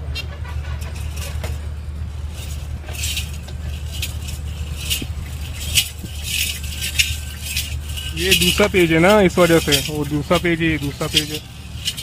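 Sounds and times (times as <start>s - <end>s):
steady low hum: 0.0s - 12.0s
metal bells jingling: 0.6s - 12.0s.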